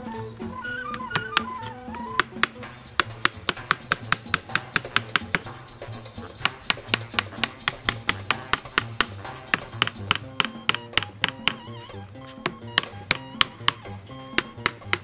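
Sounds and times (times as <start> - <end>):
background music: 0.0 - 15.0
hammer driving nails into wood: 2.2 - 5.6, 6.4 - 15.0.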